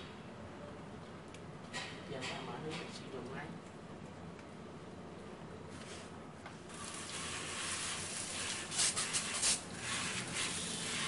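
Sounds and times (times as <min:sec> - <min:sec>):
water spraying from shower head: 0:06.7 - 0:11.0.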